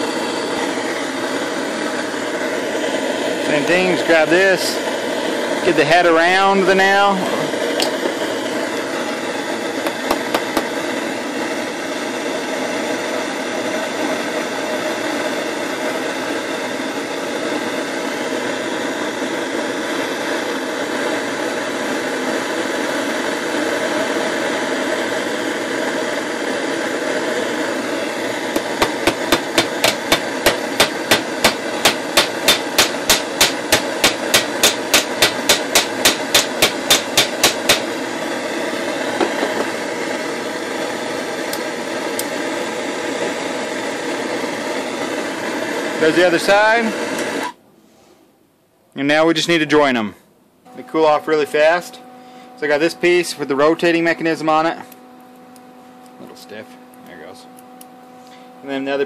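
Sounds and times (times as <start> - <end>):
propane torch rushing: 0.0 - 47.6
hammer blows on metal: 28.6 - 37.9.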